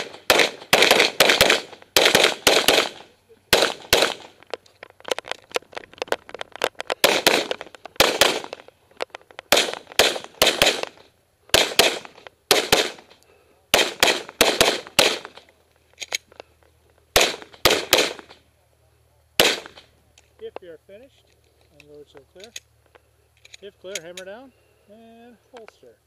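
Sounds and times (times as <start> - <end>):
pistol shots: 0.0 - 4.4, 7.0 - 8.6, 9.5 - 15.4, 17.1 - 18.4, 19.4 - 19.9.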